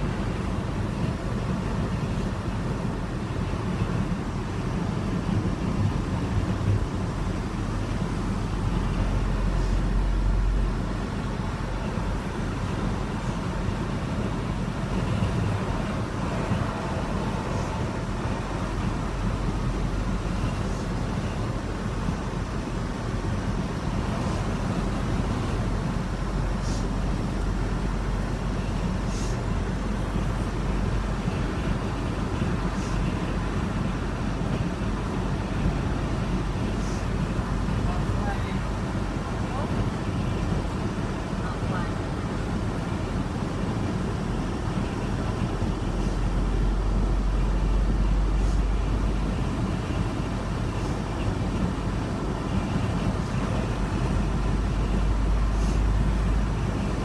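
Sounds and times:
car engine and tyres rumbling: 0.0 - 57.0
tyre hiss: 29.0 - 29.4, 55.5 - 55.9.

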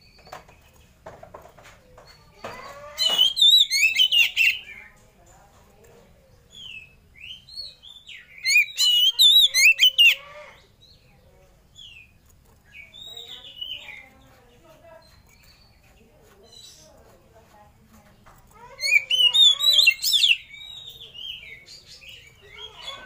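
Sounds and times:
bird whistled song: 3.0 - 4.6, 6.5 - 10.2.

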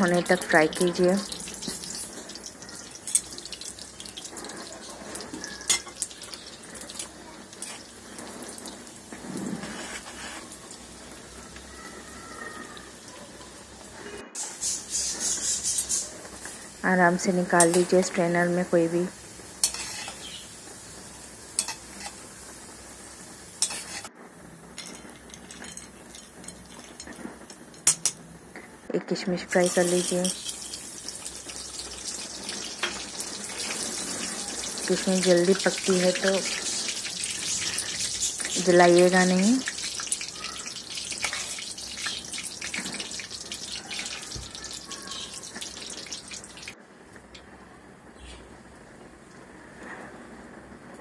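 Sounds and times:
nuts sizzling in hot fat: 0.0 - 50.8
spoon stirring in wire strainer: 29.8 - 46.7.

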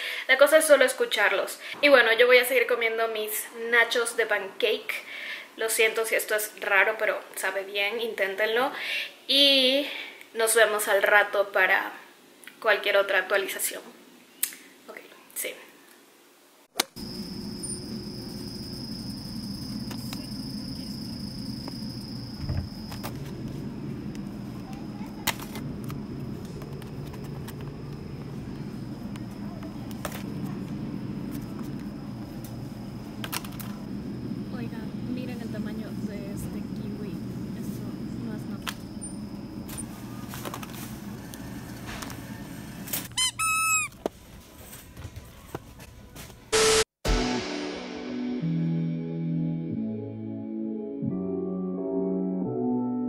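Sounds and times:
supermarket background hum: 16.8 - 46.6
squeaky pet toy squeaking: 43.2 - 44.0.

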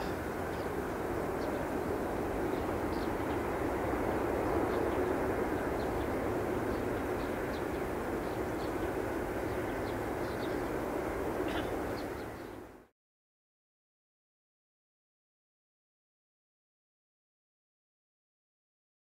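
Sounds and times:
distant jet engines rumbling: 0.0 - 12.9.

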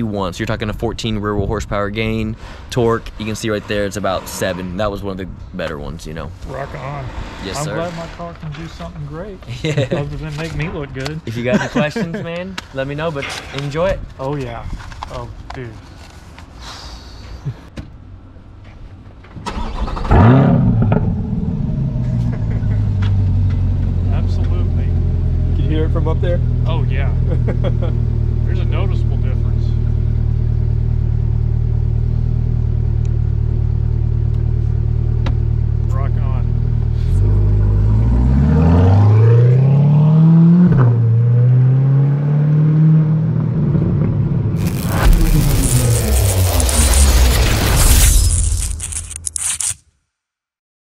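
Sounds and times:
car engine starting and idling: 19.4 - 38.4.

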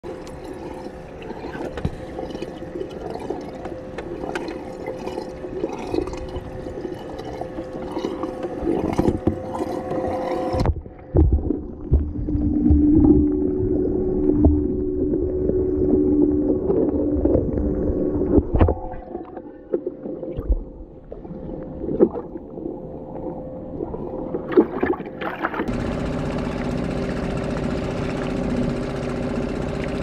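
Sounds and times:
muffled underwater sound: 0.0 - 25.8
mechanical hum: 0.0 - 30.0
water splashing in tank: 4.2 - 13.2, 24.5 - 25.7
low thumps: 10.6 - 15.7.

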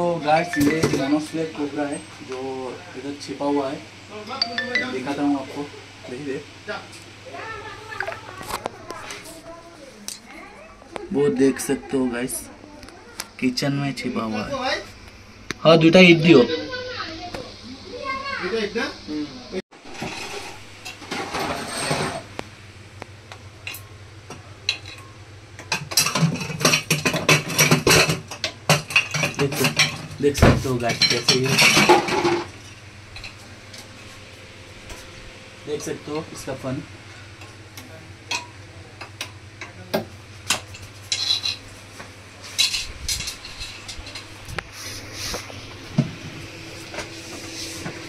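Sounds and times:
utensils and pots clattering: 19.8 - 22.4, 24.7 - 33.4, 38.3 - 41.8, 42.4 - 44.6.

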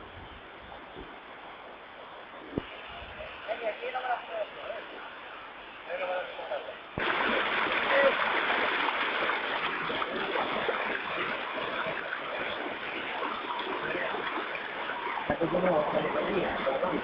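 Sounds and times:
stream rushing over rocks: 7.0 - 17.0.

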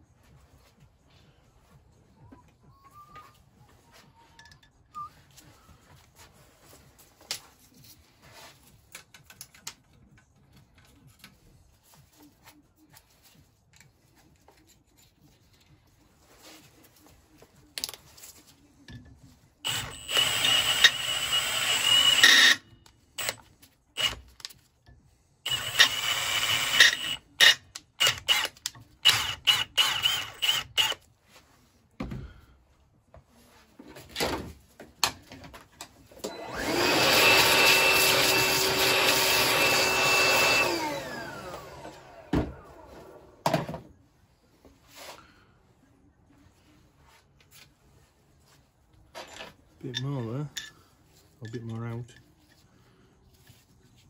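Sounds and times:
cordless drill whining: 19.6 - 23.4, 24.0 - 24.2, 25.4 - 31.0, 36.2 - 43.2
tools clinking: 49.2 - 52.5.

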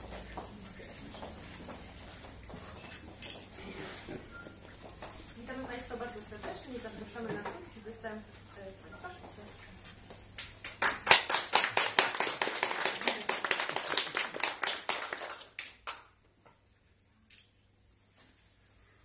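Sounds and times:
audience clapping: 10.4 - 16.2.

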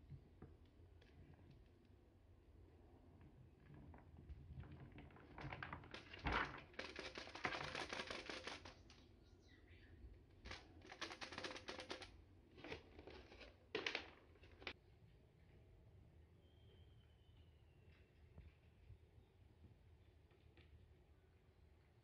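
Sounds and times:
litter pellets pouring into plastic box: 5.8 - 9.0, 10.5 - 14.7.

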